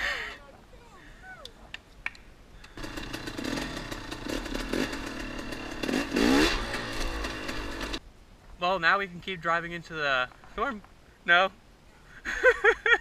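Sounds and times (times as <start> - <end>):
dirt bike engine revving: 2.8 - 8.0.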